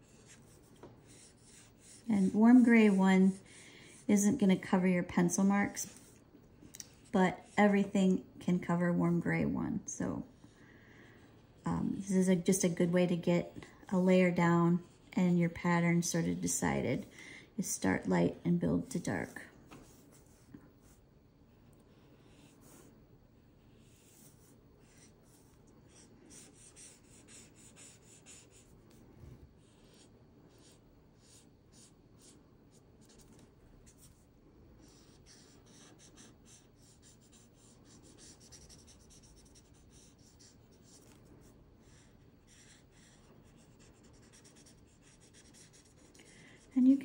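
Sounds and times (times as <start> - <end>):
marker swishing on paper: 0.0 - 6.2.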